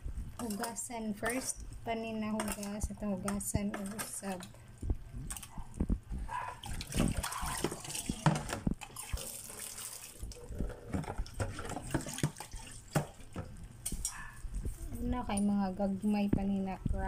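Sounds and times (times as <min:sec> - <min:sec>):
water splashing in metal basin: 0:06.6 - 0:10.4, 0:11.2 - 0:13.4.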